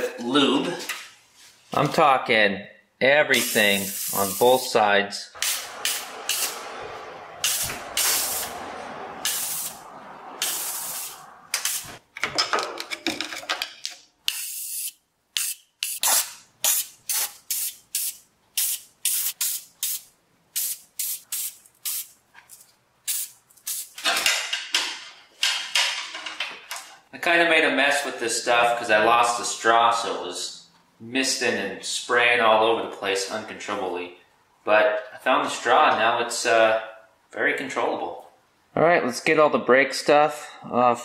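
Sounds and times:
aerosol can spraying: 3.4s - 4.6s, 5.4s - 6.5s, 10.4s - 12.0s, 14.3s - 22.2s.

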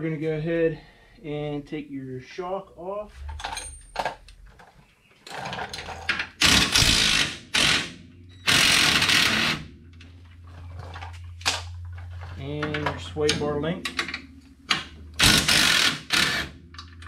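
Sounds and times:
impact wrench bursts: 5.9s - 9.6s, 15.2s - 16.6s.

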